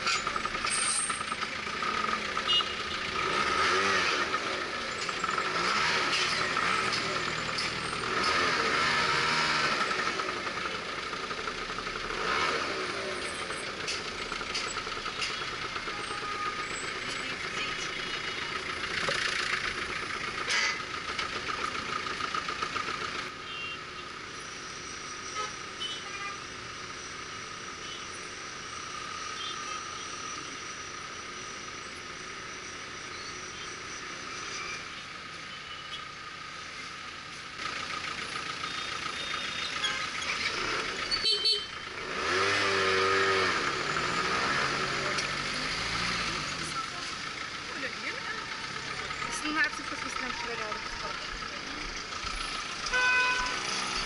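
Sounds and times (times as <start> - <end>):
engine hum: 0.0 - 54.0
vehicles passing: 0.0 - 54.0.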